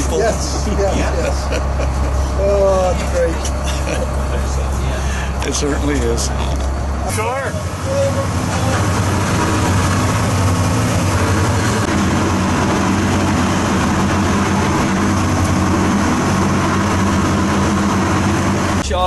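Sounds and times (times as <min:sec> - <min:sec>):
boat engine humming: 0:00.0 - 0:19.0
water wash: 0:07.1 - 0:19.0.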